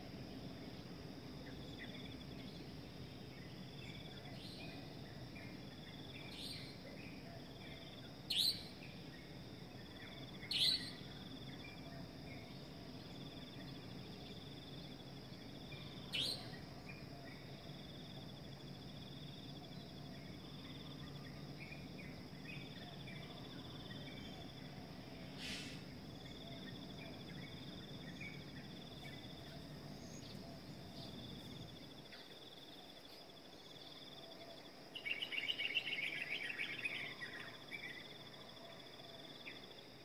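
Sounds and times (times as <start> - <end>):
pulsing insect trill: 0.0 - 40.0
bird chirps: 3.4 - 9.0, 10.0 - 12.6, 15.8 - 17.5, 34.9 - 38.0.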